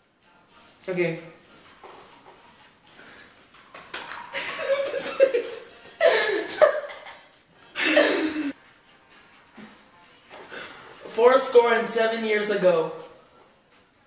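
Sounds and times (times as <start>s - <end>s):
boys laughing hard: 4.3s - 8.5s.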